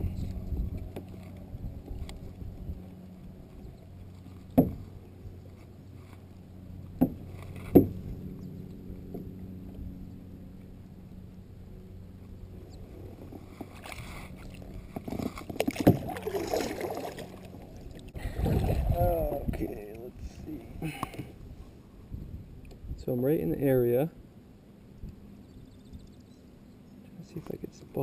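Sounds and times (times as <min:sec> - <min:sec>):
paddle knocking on kayak hull: 0:04.6 - 0:04.9
paddle strokes splashing water: 0:12.9 - 0:19.0.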